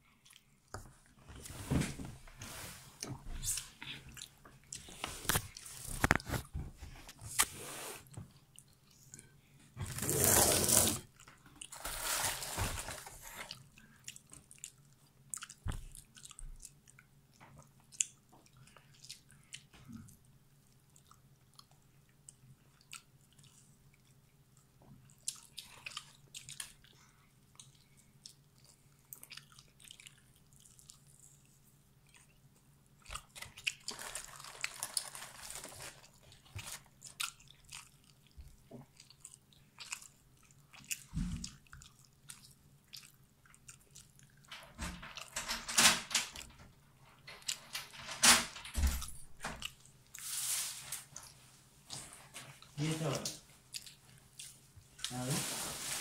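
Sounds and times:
crunching fried chicken: 33.1s - 38.2s.

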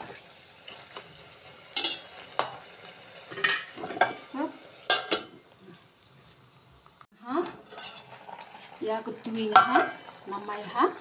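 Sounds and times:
food sizzling: 0.0s - 11.0s
metal spoon scraping a pot: 1.7s - 2.6s, 7.4s - 10.1s.

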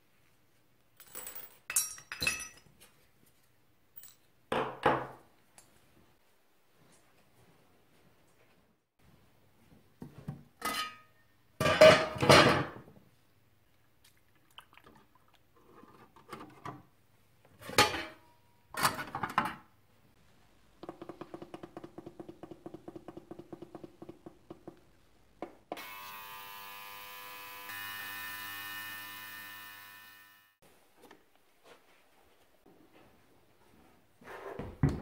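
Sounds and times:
ultrasonic cleaner humming buzz: 25.8s - 30.6s.

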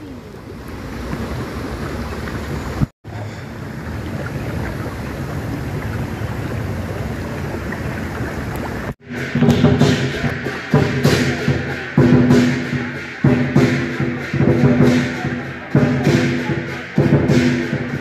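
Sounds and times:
jacuzzi jets bubbling: 0.0s - 9.0s.

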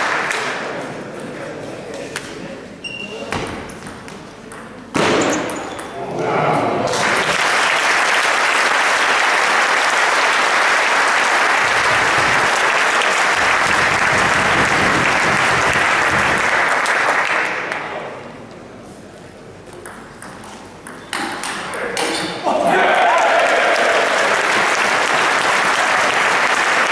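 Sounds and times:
audience applauding: 0.0s - 0.5s, 6.9s - 17.9s, 22.8s - 26.9s.

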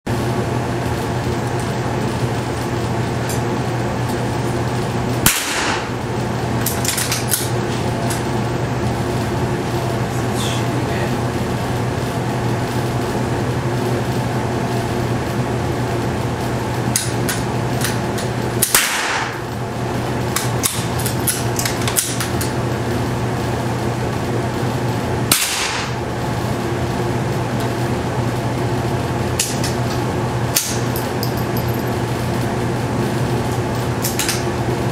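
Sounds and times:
background hum: 0.1s - 34.9s
rifle shots echoing indoors: 5.2s - 6.0s, 18.6s - 19.4s, 25.3s - 26.0s.

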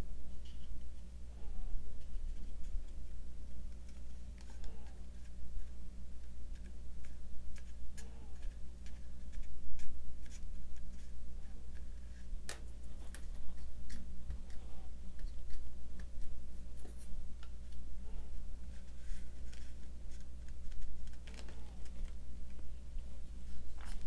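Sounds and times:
steady low hum: 0.0s - 24.0s
paper clicks and rustles: 18.8s - 22.6s.

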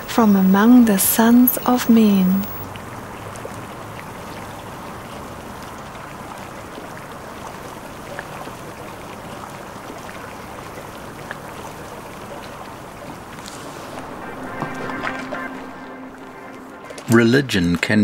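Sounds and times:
running water: 0.0s - 18.0s.

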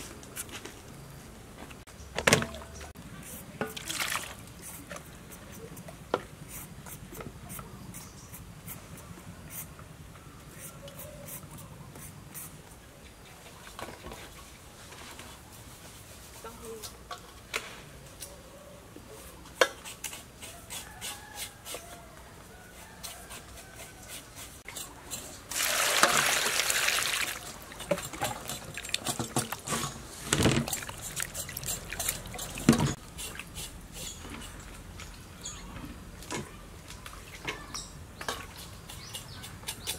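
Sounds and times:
water splashing in metal bowl: 3.7s - 4.5s, 25.5s - 29.7s, 30.6s - 33.0s.

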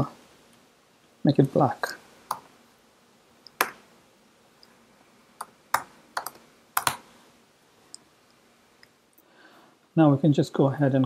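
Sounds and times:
computer keyboard typing: 5.4s - 7.0s.

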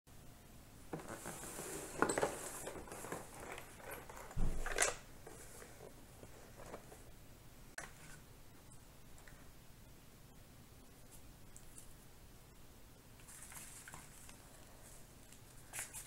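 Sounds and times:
cardboard rubbing on table: 1.0s - 3.8s.

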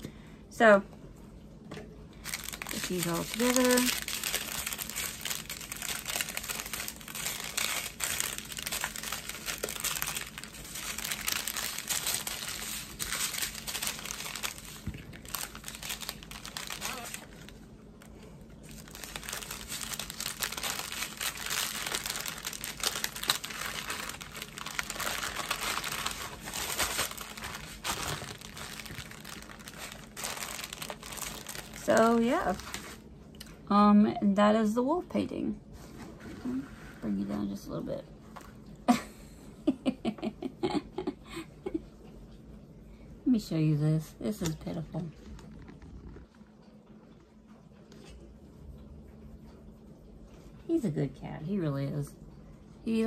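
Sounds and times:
plastic packets crinkling: 2.2s - 33.0s, 44.4s - 46.4s.

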